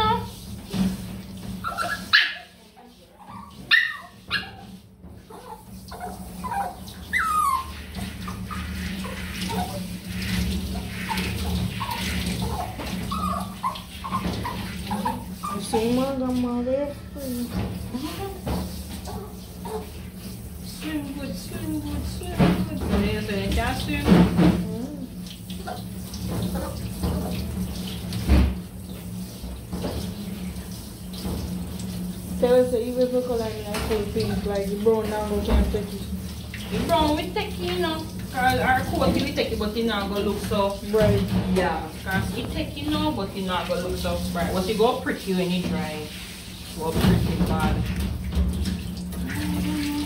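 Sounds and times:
hose water spraying and splashing: 0:00.0 - 0:50.0
dog whimpering: 0:01.6 - 0:02.6, 0:03.2 - 0:04.7, 0:05.3 - 0:08.8, 0:11.1 - 0:16.1.

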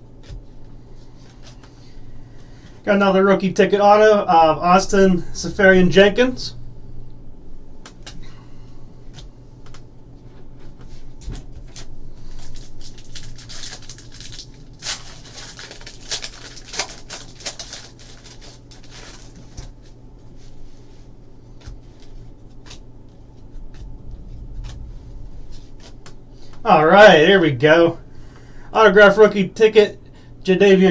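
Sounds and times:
foil wrapper crinkling and tearing: 0:11.6 - 0:20.0
cards clicking and rustling: 0:21.6 - 0:23.9.

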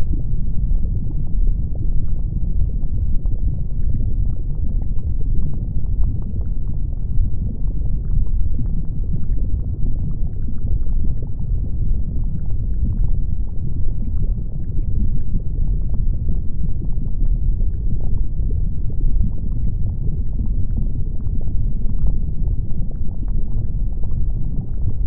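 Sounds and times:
crackles and pops of lava: 0:00.0 - 0:25.0
deep rumble of volcanic eruption: 0:00.0 - 0:25.0.

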